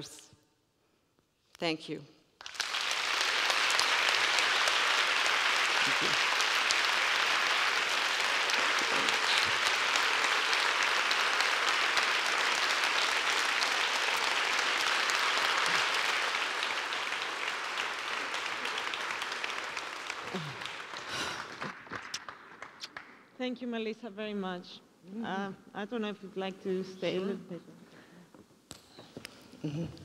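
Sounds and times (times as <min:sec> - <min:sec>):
audience applauding: 0:02.4 - 0:23.3.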